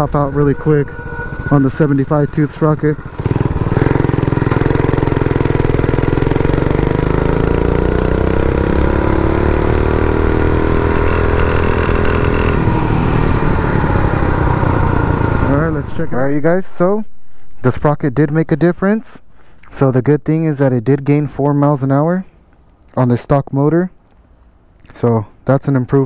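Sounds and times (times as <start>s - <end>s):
small engine running under load: 0.0s - 15.8s.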